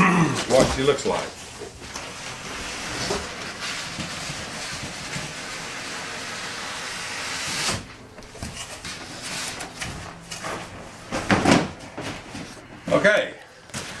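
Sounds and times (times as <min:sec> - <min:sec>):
cardboard and foam rustling: 0:00.3 - 0:06.5, 0:07.6 - 0:14.0.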